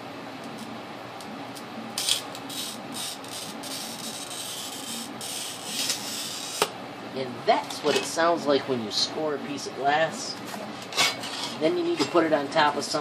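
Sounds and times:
glass cutter scoring glass: 2.0s - 6.7s.

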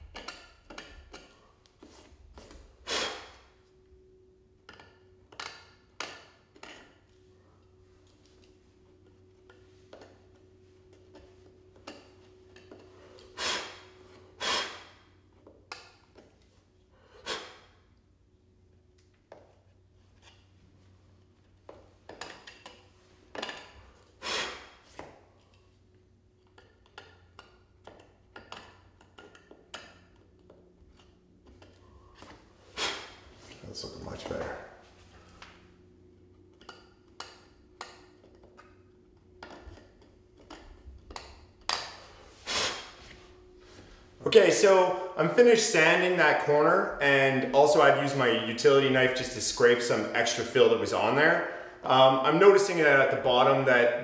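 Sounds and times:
knife blade scraping wood: 2.9s - 3.4s.

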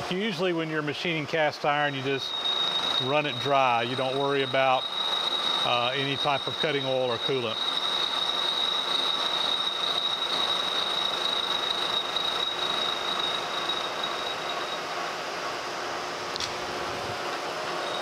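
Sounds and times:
high machine whine: 1.4s - 18.0s
milling machine cutting metal: 2.0s - 15.0s, 17.3s - 18.0s.

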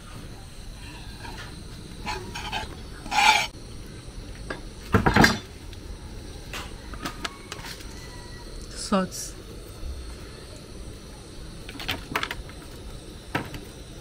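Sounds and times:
knife scraping wooden chopping board: 2.1s - 3.5s.

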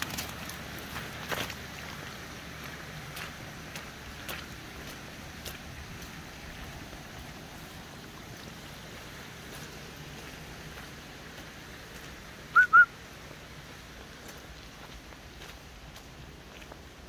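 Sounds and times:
steady background hiss: 0.0s - 17.0s
short loud whistled notes: 12.5s - 12.9s.

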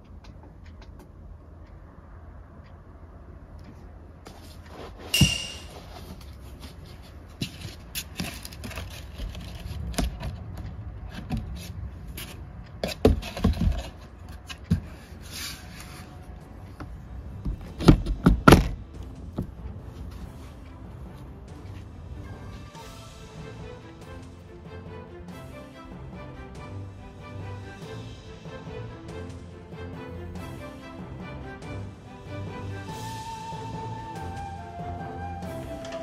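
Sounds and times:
rustling and scraping: 4.2s - 21.0s.

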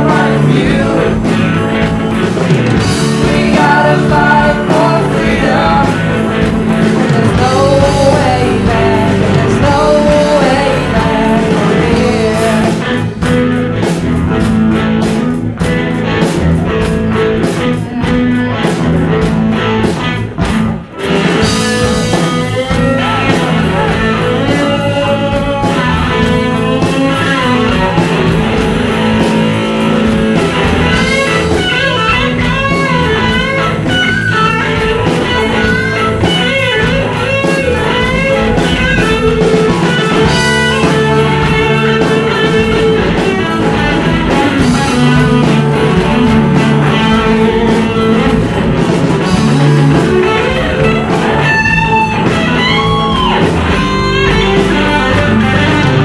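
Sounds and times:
bass and drums: 0.0s - 56.0s
electric guitar solo: 0.0s - 56.0s.

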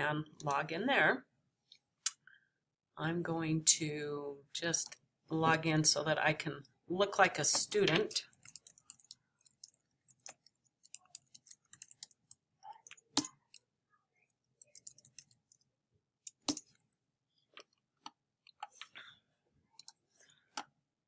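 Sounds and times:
typing on keyboard: 7.9s - 13.7s, 14.6s - 15.6s.

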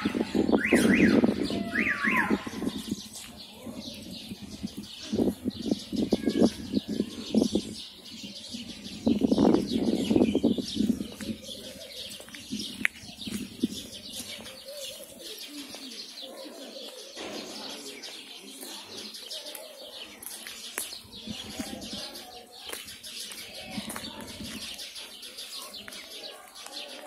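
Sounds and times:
small birds chirping: 0.0s - 27.0s
car alarm wailing: 0.6s - 2.5s
pigeons cooing: 13.2s - 18.0s.

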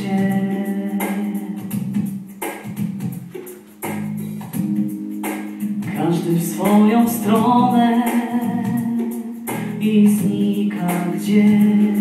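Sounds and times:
man singing into microphone: 0.0s - 1.7s, 5.9s - 12.0s
instrumental backing music: 0.0s - 12.0s.

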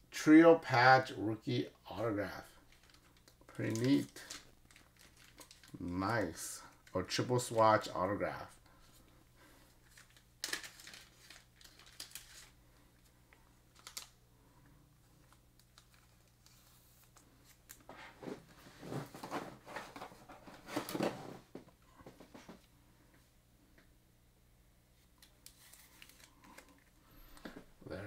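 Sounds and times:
plastic sleeve rustling and clicking: 2.6s - 7.6s, 9.8s - 13.1s, 13.7s - 14.2s, 15.2s - 17.9s, 25.2s - 27.7s.

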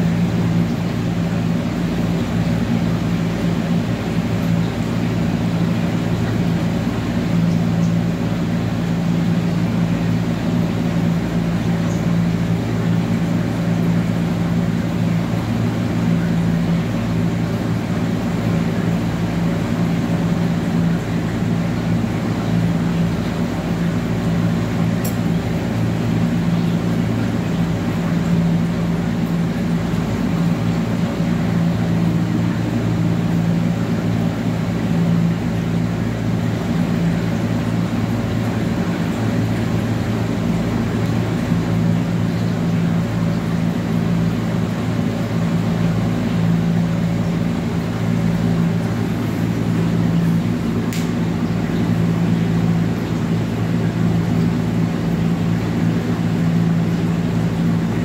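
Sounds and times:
low machine hum: 0.0s - 58.0s.

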